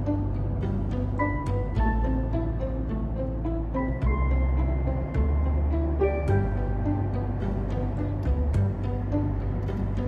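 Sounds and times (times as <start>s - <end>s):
deep sustained bass: 0.0s - 10.0s.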